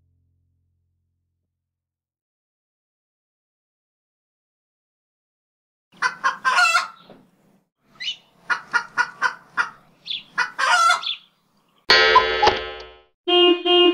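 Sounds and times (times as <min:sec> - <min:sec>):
chicken clucking: 0:06.0 - 0:07.1, 0:08.0 - 0:11.3
loud horn blast: 0:13.3 - 0:13.9.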